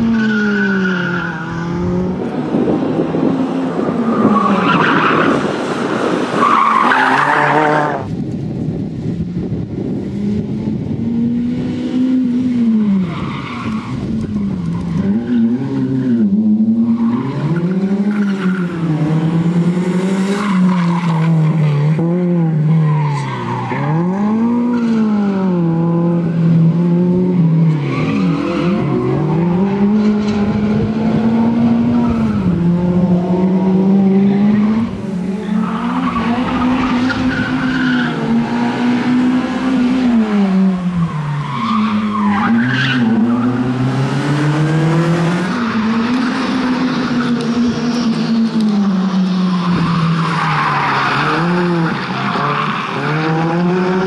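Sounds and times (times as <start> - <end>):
car engine revving hard: 23.4 - 54.0.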